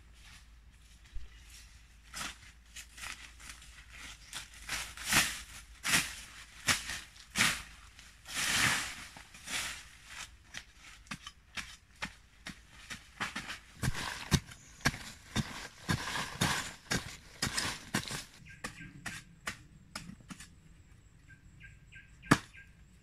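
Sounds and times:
rustling of leaves and stems: 0.0 - 18.5
hand tool chopping grass: 4.4 - 7.7, 8.4 - 20.5.

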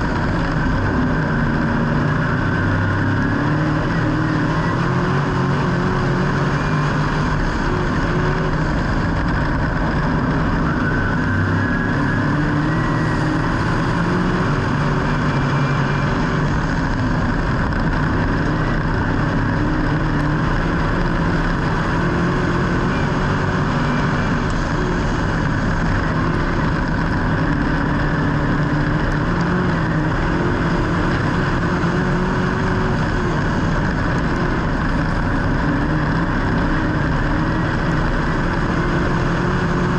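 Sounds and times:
vehicle engines running: 0.0 - 39.9.

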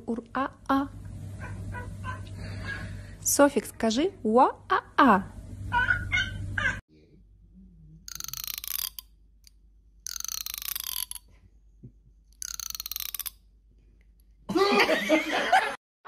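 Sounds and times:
cat crying: 5.7 - 6.8.

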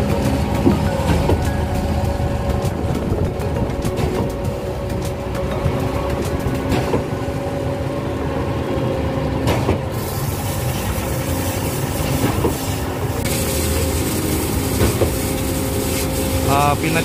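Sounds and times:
concrete pump running: 0.0 - 17.0
hiss: 9.9 - 17.0.

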